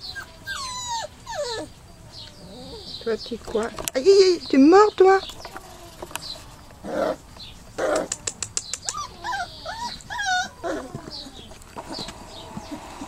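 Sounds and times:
puppies whimpering: 0.0 - 4.2, 5.2 - 13.0
quick patter of clicks: 7.9 - 9.0.

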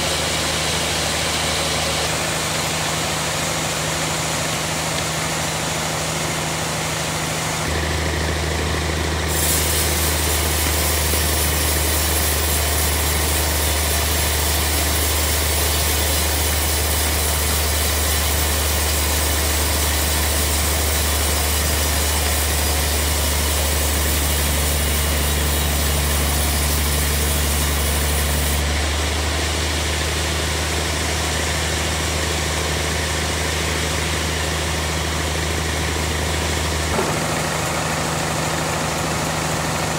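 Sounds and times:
sawmill drive droning: 0.0 - 39.9
saw blade cutting wood hiss: 9.2 - 28.7.

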